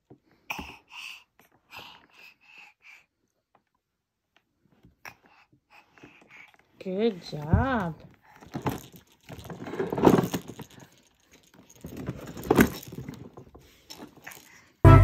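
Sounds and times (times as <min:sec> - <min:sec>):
toys rattling and clattering: 0:06.0 - 0:14.8.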